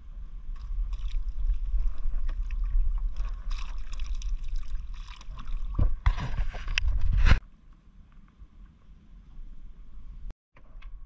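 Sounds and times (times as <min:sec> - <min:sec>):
water sloshing around a boat: 0:00.3 - 0:07.0.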